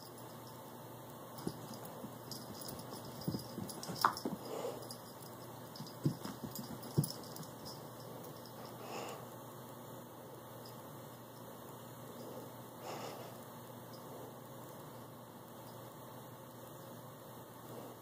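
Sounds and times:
cat paws thudding on carpet: 1.4s - 4.4s, 5.8s - 7.6s.

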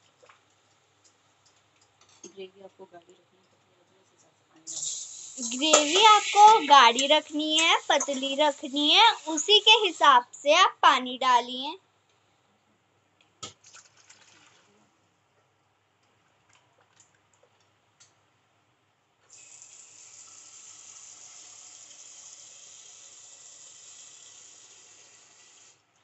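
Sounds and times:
water pouring: 4.7s - 10.2s, 13.6s - 14.8s.

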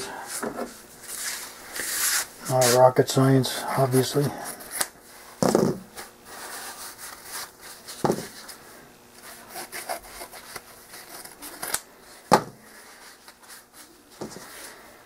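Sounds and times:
scissors cutting paper: 9.3s - 11.8s.

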